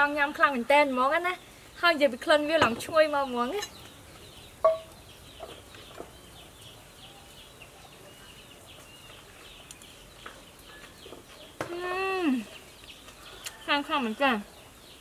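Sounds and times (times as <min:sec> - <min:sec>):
chickens clucking: 0:02.4 - 0:11.8.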